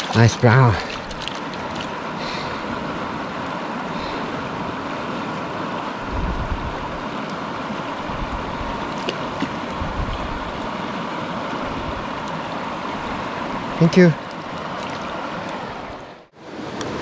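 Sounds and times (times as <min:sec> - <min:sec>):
creek running over rocks: 0:00.0 - 0:06.0, 0:06.7 - 0:17.0
wind buffeting microphone: 0:06.0 - 0:07.2, 0:08.0 - 0:10.8.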